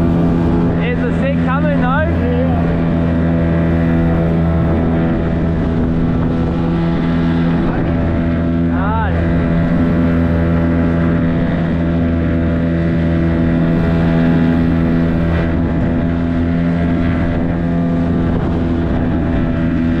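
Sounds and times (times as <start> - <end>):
outboard motor running: 0.0 - 20.0.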